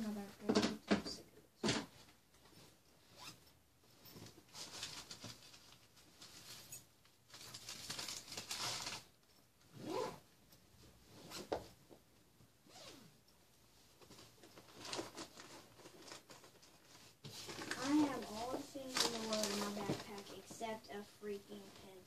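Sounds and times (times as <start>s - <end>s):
rummaging rustle: 4.0s - 9.1s, 13.9s - 20.8s
bag zipper pulled: 9.8s - 10.2s, 12.7s - 13.1s.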